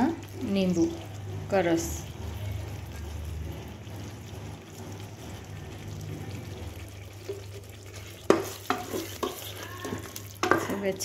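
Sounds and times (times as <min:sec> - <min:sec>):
faint sizzle: 0:00.0 - 0:11.0
spoon stirring thick curry: 0:00.2 - 0:11.0
spoon knocking and scraping pot: 0:07.2 - 0:11.0.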